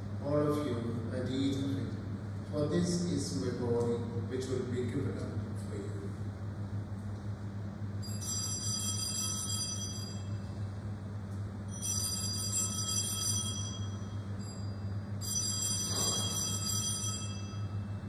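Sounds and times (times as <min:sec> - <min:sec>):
steady low hum: 0:00.0 - 0:18.0
bells ringing: 0:11.7 - 0:18.0.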